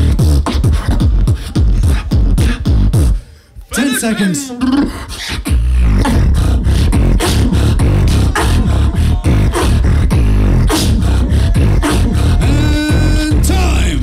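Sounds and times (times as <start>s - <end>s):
beatboxing through a microphone: 0.0s - 14.0s
held pitched vocal tone: 3.7s - 14.0s.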